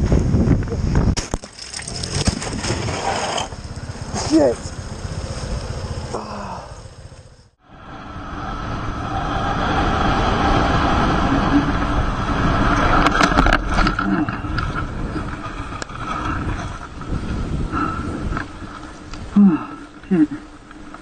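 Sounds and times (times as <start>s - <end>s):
wind noise: 0.0s - 21.0s
motorcycle crashing on road: 1.2s - 6.1s
motorcycle engine running: 1.8s - 7.6s.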